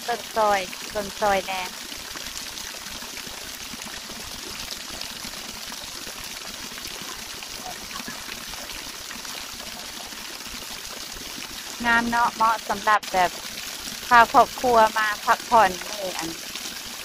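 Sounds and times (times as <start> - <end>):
waterfall rushing: 6.8 - 10.2, 11.7 - 13.3.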